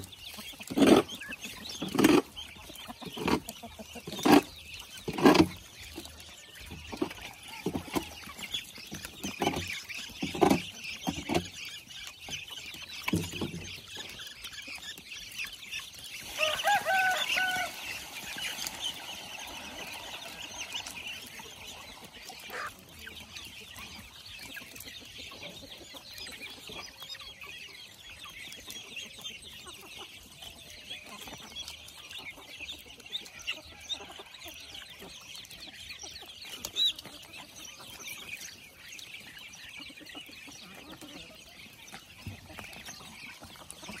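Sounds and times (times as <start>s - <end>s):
chickens chirping and clucking: 0.0s - 44.0s
loud chicken call: 16.2s - 22.8s.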